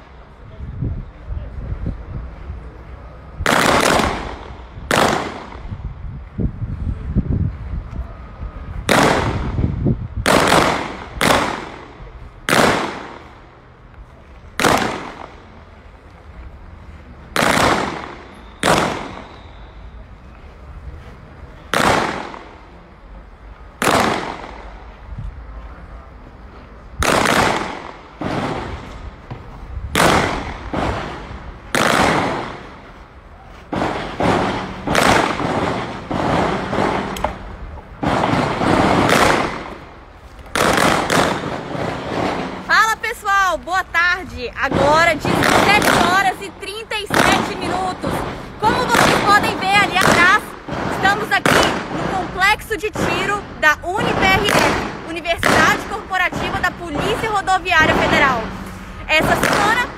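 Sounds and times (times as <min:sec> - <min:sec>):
gunshots with short echo: 0:10.2 - 0:11.9, 0:17.4 - 0:19.6, 0:27.0 - 0:28.8, 0:30.0 - 0:32.8, 0:33.7 - 0:39.9, 0:40.5 - 0:42.7.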